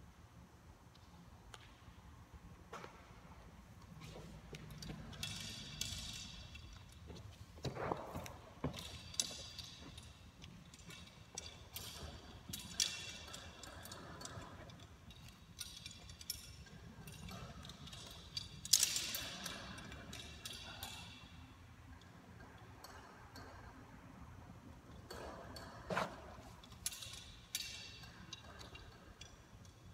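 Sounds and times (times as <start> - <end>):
metal rigging ticks and clinks: 4.7 - 7.0, 8.7 - 21.4, 26.6 - 29.9.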